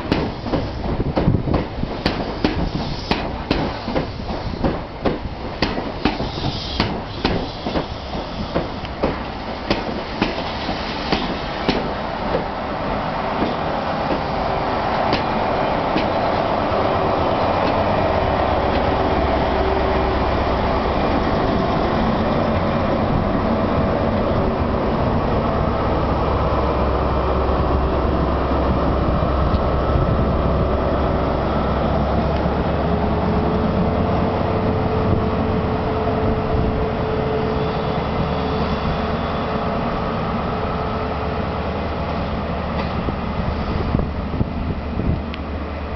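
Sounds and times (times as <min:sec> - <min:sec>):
train wheels clicking over rail joints: 0:00.0 - 0:12.6, 0:13.3 - 0:16.5, 0:17.6 - 0:17.9, 0:18.7 - 0:18.9
diesel locomotive drone: 0:00.0 - 0:45.9.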